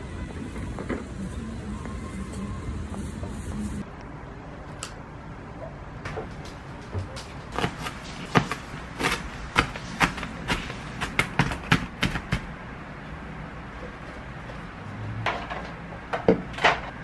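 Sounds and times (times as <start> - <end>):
street noise: 0.0 - 17.0
knife chopping on plastic board: 7.5 - 12.5.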